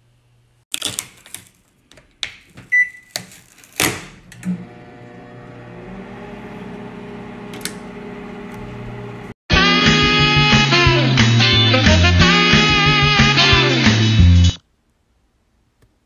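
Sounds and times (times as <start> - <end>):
microwave oven humming: 4.2 - 9.4.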